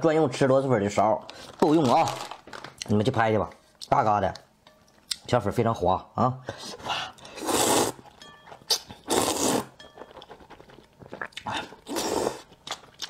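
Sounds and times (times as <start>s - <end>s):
person slurping noodles: 7.3s - 8.0s, 8.7s - 9.7s, 11.2s - 12.5s
soft chewing: 9.8s - 13.0s.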